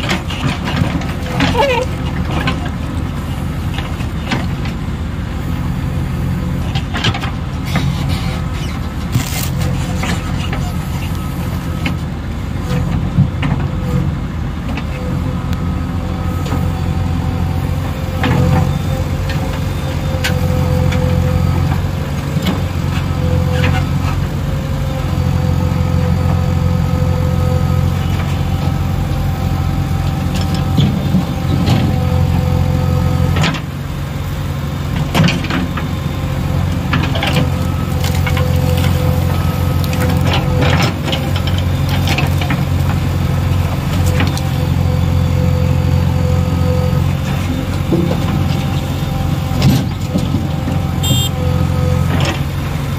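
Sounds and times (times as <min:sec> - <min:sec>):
diesel engine running: 0:00.0 - 0:52.9
hydraulic whine: 0:48.6 - 0:52.4.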